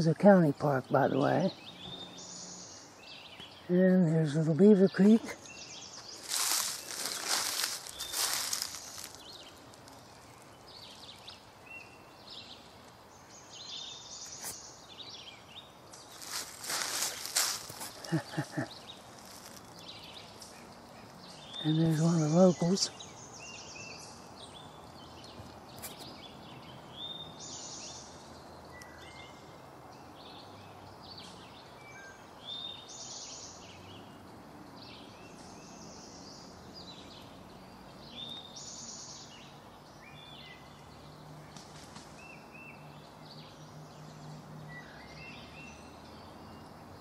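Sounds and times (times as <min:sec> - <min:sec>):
faint outdoor hiss: 0:00.0 - 0:47.0
songbirds singing: 0:00.0 - 0:47.0.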